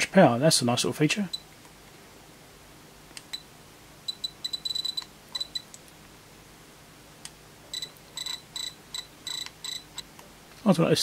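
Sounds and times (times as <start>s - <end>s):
short high-pitched beeps: 4.1s - 5.7s, 7.7s - 9.8s.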